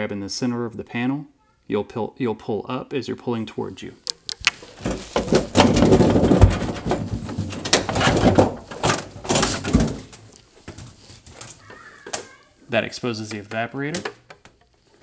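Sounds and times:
plastic knocks: 4.3s - 11.0s
plastic panel scraping: 4.4s - 11.6s.

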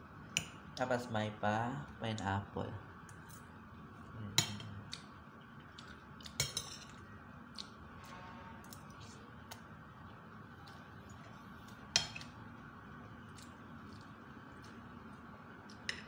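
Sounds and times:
steady background hum: 0.0s - 16.0s
soft wet chewing: 4.8s - 7.8s, 8.7s - 11.9s, 13.1s - 15.9s.

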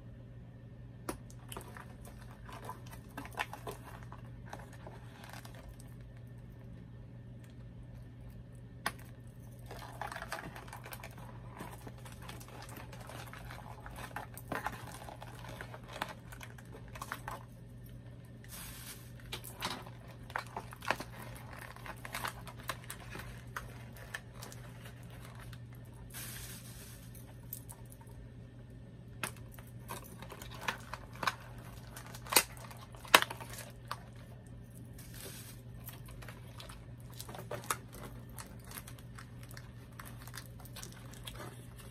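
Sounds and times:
steady low hum: 0.0s - 41.9s
cardboard packaging rustling and tearing: 9.6s - 17.7s, 18.4s - 27.6s, 29.3s - 41.9s.

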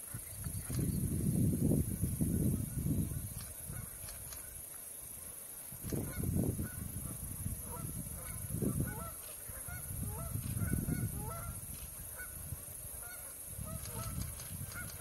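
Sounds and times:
geese honking: 7.7s - 11.6s.

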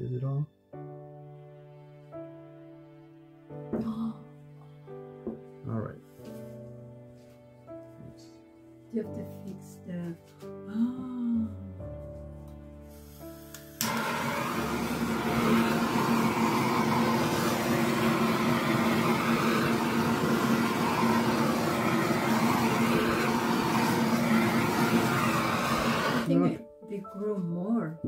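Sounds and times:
soft background music: 0.0s - 14.3s, 26.3s - 28.0s
blow torch hissing: 12.8s - 26.5s.

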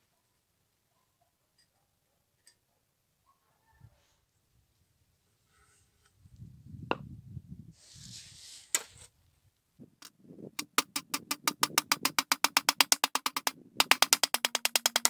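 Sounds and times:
hammer striking saw teeth: 10.6s - 15.0s.

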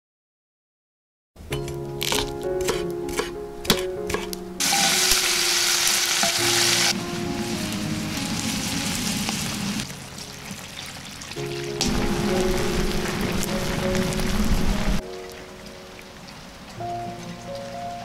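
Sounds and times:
soft background music: 1.4s - 18.0s
knife chopping on wooden board: 1.6s - 4.4s
food sizzling in a pan: 4.6s - 15.0s.

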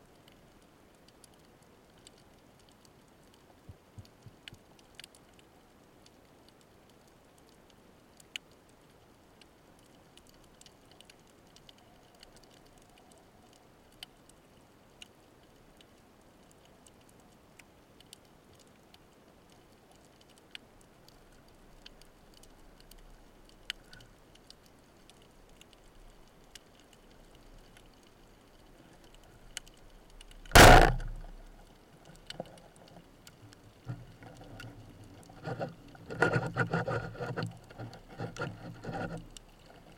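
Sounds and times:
faint underwater clicks: 0.0s - 39.9s
speargun bang underwater: 30.6s - 31.4s.

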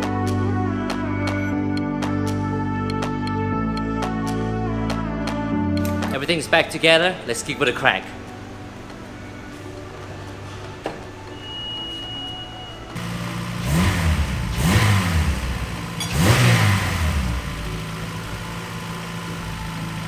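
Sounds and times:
short high tone: 11.3s - 13.0s
car engine starting and revving: 12.9s - 20.0s
engine idling: 13.0s - 20.0s.

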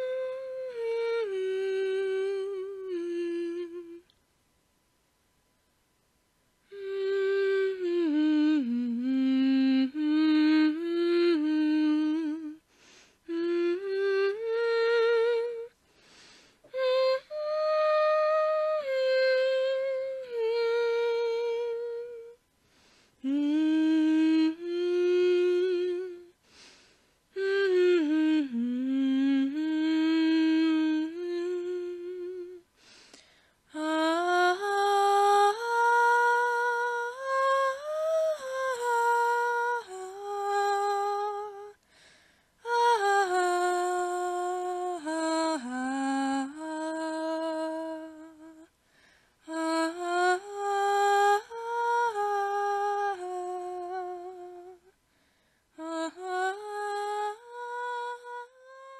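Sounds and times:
person humming a melody: 0.0s - 4.2s, 6.6s - 41.8s, 42.6s - 48.8s, 49.4s - 55.0s, 55.7s - 58.9s
person breathing: 12.7s - 13.3s, 15.8s - 16.7s, 22.6s - 23.2s, 26.4s - 27.2s, 32.7s - 33.6s, 41.8s - 42.6s, 48.8s - 49.4s, 55.0s - 55.7s.

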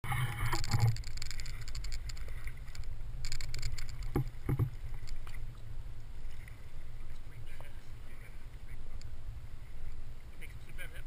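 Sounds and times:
water lapping and splashing: 0.0s - 11.0s
soft knocks: 4.1s - 4.8s.

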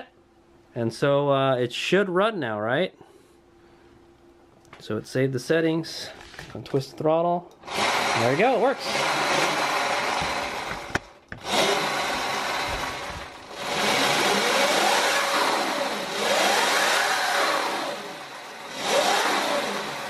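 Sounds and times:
electric motor whine: 7.6s - 20.0s.

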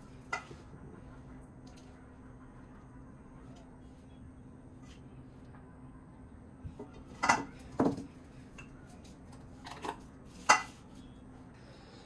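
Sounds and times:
kitchenware clinking: 7.1s - 8.7s, 9.6s - 10.8s.

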